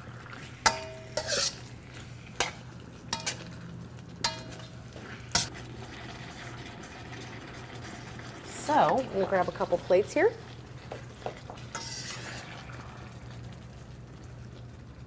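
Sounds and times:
food sizzling: 0:00.0 - 0:15.0
metal utensil clinking on wok: 0:00.7 - 0:01.6, 0:02.4 - 0:03.5, 0:04.2 - 0:04.7.

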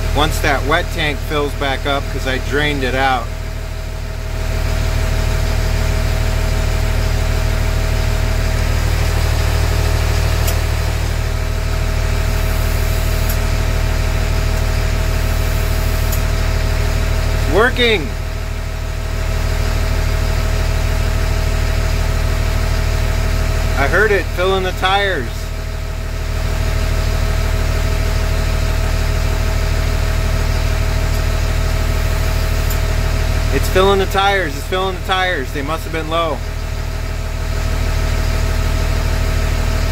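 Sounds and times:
diesel truck engine idling: 0:00.0 - 0:39.9
air filling tires: 0:11.9 - 0:13.6, 0:14.4 - 0:16.4.

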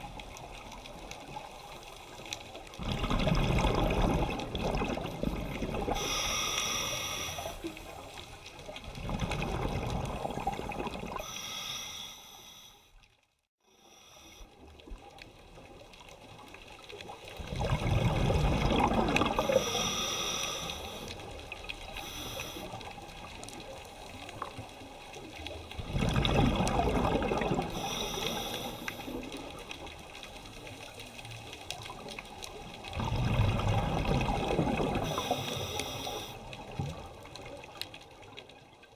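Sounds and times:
underwater regulator bubbles: 0:02.8 - 0:11.6, 0:17.4 - 0:23.4, 0:25.7 - 0:30.4, 0:31.8 - 0:37.6.

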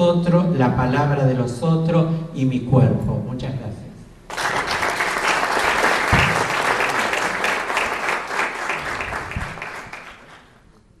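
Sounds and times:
audience applauding: 0:04.3 - 0:10.8.

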